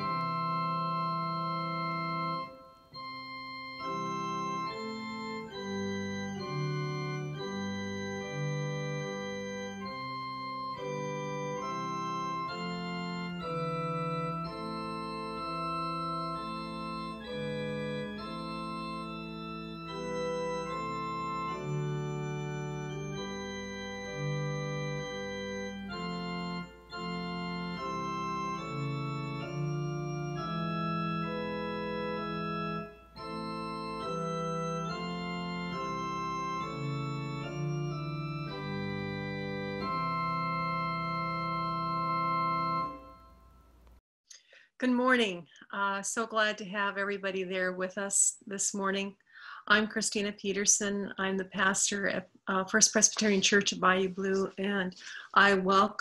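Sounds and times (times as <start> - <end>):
organ chords on digital piano: 0.0 - 44.0.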